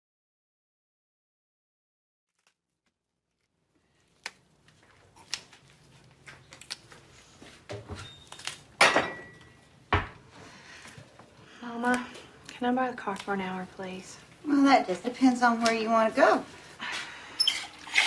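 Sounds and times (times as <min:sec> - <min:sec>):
green beans snapping: 0:02.3 - 0:07.0, 0:08.3 - 0:08.8, 0:11.9 - 0:13.4.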